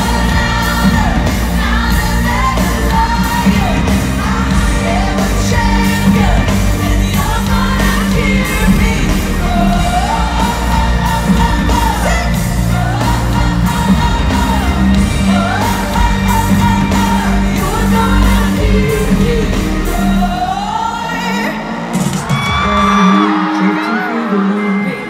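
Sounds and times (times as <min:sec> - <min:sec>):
woman singing: 0:00.0 - 0:21.6
live pop band playing: 0:00.0 - 0:25.0.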